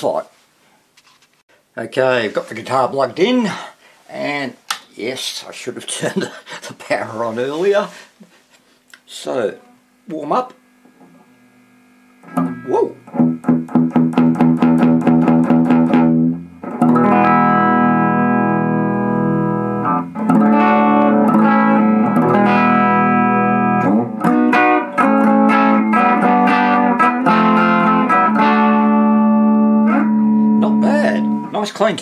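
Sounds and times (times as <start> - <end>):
electric guitar clean tone: 10.8 - 31.8.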